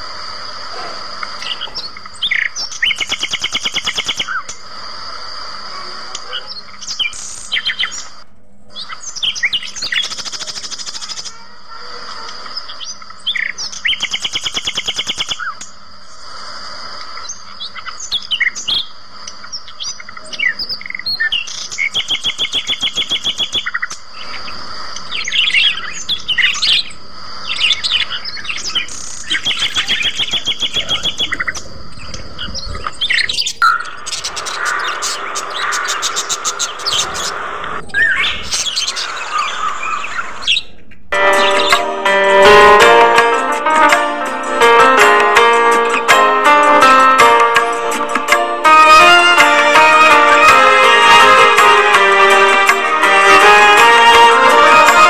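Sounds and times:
budgerigars chirping and warbling: 0:00.8 - 0:04.5, 0:06.2 - 0:11.4, 0:12.5 - 0:15.7, 0:17.2 - 0:41.8
fast chattering trills: 0:00.8 - 0:04.7, 0:09.2 - 0:11.4, 0:27.6 - 0:40.2
steady high thin tone: 0:41.1 - 0:55.0.

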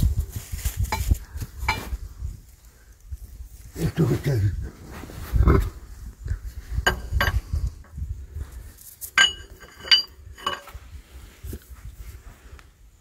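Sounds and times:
socket wrench clinking on metal: 0:09.1 - 0:10.8.

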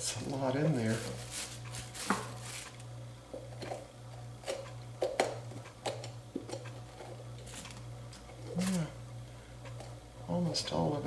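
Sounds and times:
steady low hum: 0:00.0 - 0:11.0
seeds dropping onto plastic bag: 0:00.7 - 0:02.9.

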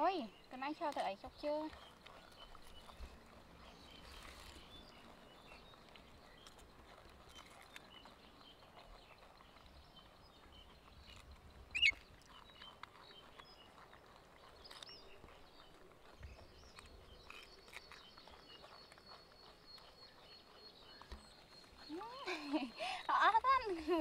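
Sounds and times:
monkeys chewing and crunching: 0:00.0 - 0:24.0
outdoor background noise: 0:00.0 - 0:24.0.

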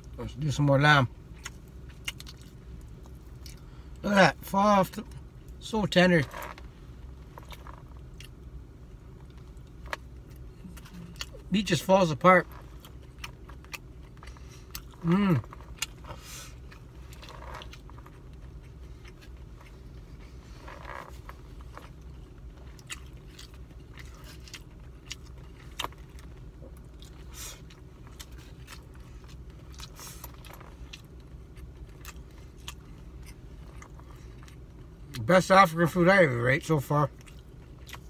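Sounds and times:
low hum inside a car: 0:00.0 - 0:38.0
person chewing: 0:01.3 - 0:04.0, 0:07.3 - 0:11.5, 0:12.5 - 0:35.2, 0:37.1 - 0:38.0.

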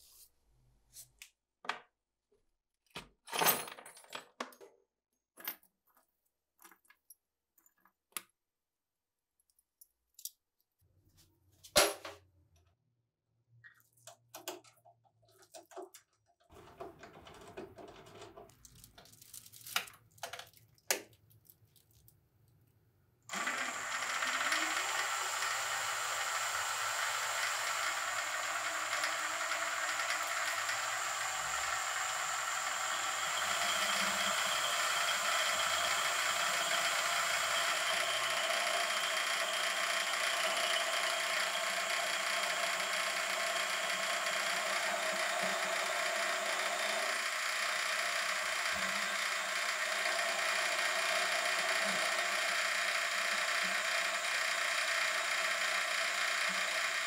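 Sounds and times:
metal lathe whining: 0:23.3 - 0:57.0.

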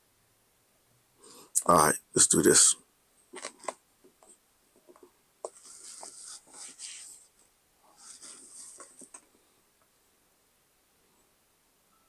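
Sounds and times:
soft hissy rustling: 0:01.4 - 0:10.2.

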